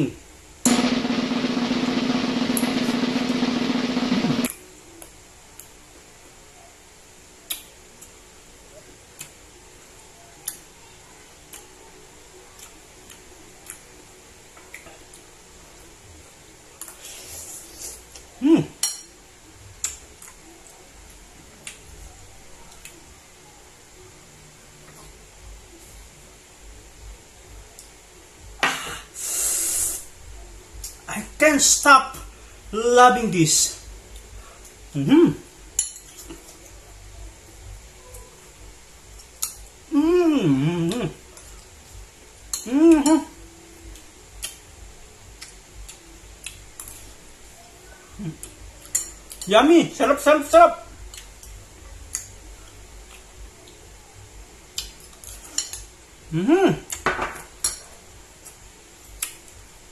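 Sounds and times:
person humming mmm: 0:17.0 - 0:18.8, 0:34.9 - 0:35.5, 0:39.9 - 0:41.4, 0:42.5 - 0:43.6, 0:47.9 - 0:48.6, 0:56.3 - 0:57.0.

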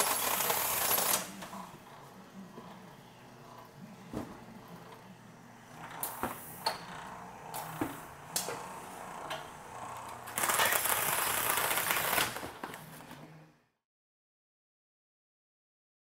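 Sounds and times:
packing tape unwinding hiss: 0:00.0 - 0:01.4, 0:10.3 - 0:13.1
machine drive hum: 0:00.0 - 0:13.6.

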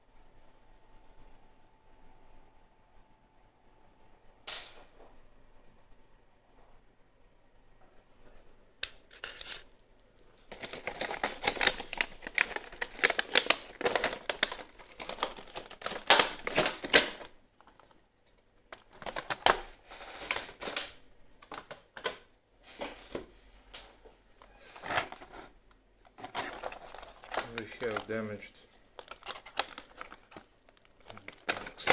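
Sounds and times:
plastic packaging crinkling: 0:08.8 - 0:09.7, 0:10.5 - 0:18.0, 0:18.6 - 0:21.0, 0:24.5 - 0:25.4, 0:26.1 - 0:31.9.

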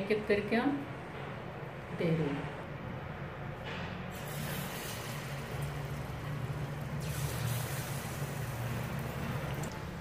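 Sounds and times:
batter sizzling in hot oil: 0:04.1 - 0:10.0.

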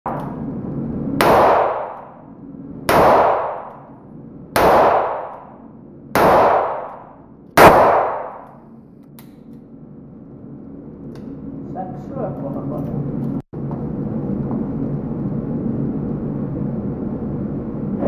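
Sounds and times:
revolver gunshots: 0:01.2 - 0:02.3, 0:02.9 - 0:08.6.

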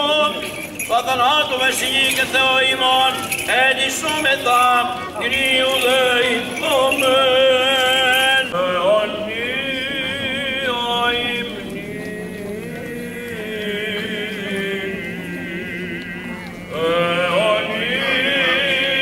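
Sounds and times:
censer bells jingling: 0:00.0 - 0:08.6
men chanting: 0:00.0 - 0:19.0.

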